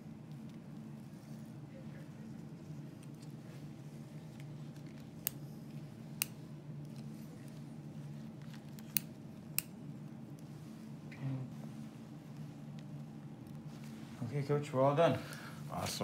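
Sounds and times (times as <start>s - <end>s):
steady low hum: 0.0s - 16.0s
surgical scissors snipping: 8.7s - 9.8s.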